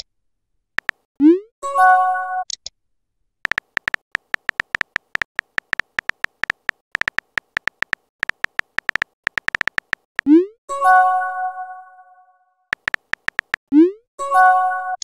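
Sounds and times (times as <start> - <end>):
phone keyboard typing clicks: 0.8 - 1.0, 3.5 - 10.3, 12.7 - 13.6
short high blips: 3.5 - 10.3, 12.8 - 13.6.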